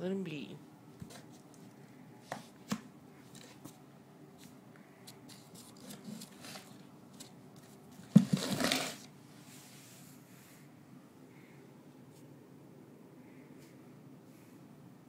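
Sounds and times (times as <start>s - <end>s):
scratchy rustling: 4.4s - 9.8s.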